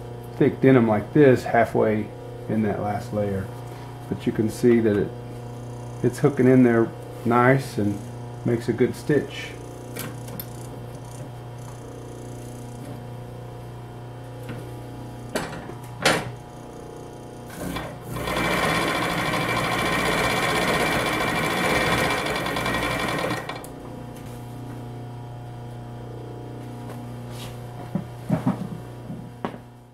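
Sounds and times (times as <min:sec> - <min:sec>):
motor hum: 0:00.0 - 0:29.9
sewing machine stitching: 0:17.5 - 0:23.7.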